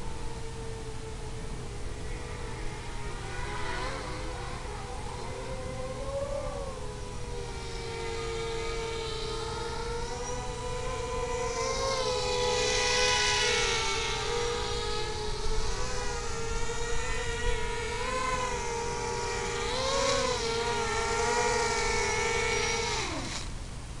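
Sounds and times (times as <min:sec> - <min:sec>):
quadcopter motors whining: 0:00.0 - 0:23.6.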